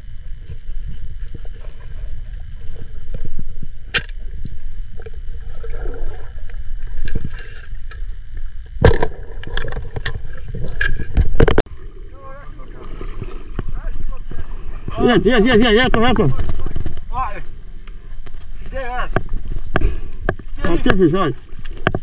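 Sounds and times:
water sloshing and splashing: 0:00.0 - 0:15.0
low rumble: 0:00.0 - 0:21.9.

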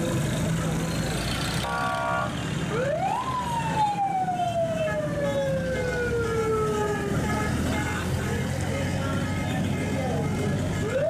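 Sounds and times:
street traffic noise: 0:00.0 - 0:11.0
vehicle siren wail: 0:01.6 - 0:07.8, 0:10.8 - 0:11.0.

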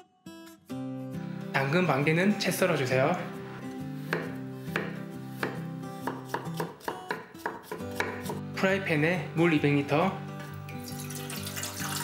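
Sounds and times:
knife chopping on wooden board: 0:04.1 - 0:08.4.

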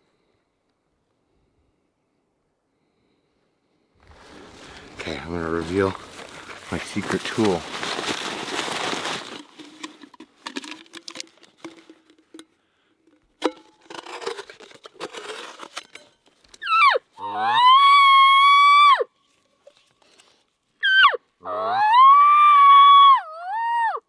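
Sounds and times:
rustling backpack: 0:04.0 - 0:12.4
can being handled: 0:04.2 - 0:16.7, 0:19.2 - 0:20.5.

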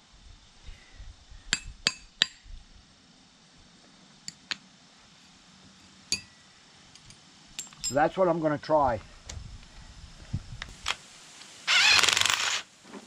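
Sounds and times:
metal-on-metal clinks: 0:07.5 - 0:08.0.

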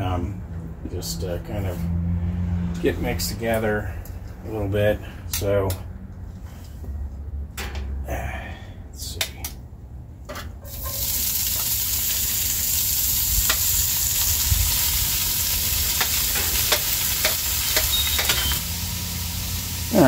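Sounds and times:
chicken sizzling in hot oil: 0:10.7 - 0:20.0.

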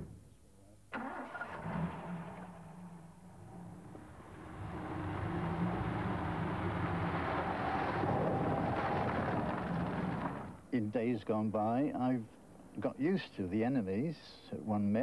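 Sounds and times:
car engine driving: 0:00.9 - 0:10.7.

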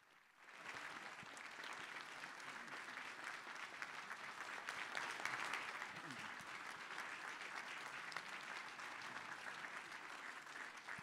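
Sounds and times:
audience applauding: 0:00.6 - 0:11.0.

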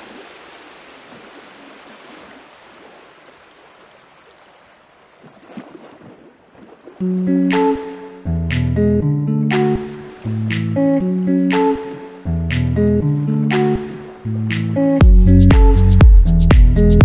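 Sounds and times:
sea waves washing: 0:00.0 - 0:08.3, 0:09.3 - 0:14.9
plucked guitar music: 0:07.0 - 0:17.0.

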